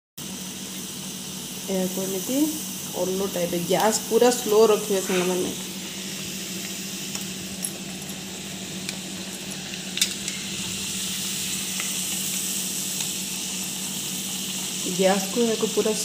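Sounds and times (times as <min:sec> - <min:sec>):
fritters sizzling in oil: 0:00.2 - 0:16.0
low hum: 0:02.8 - 0:13.0.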